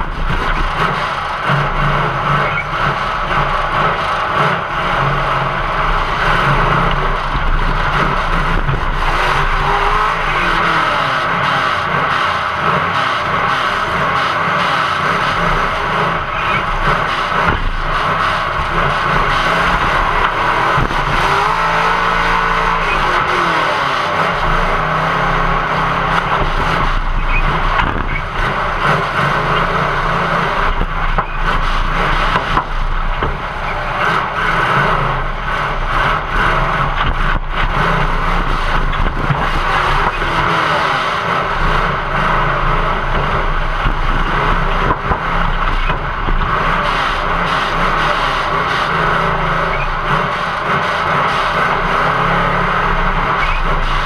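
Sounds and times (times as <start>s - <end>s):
car engine revving: 0.0s - 54.0s
knocks and metal scrapes: 15.1s - 54.0s.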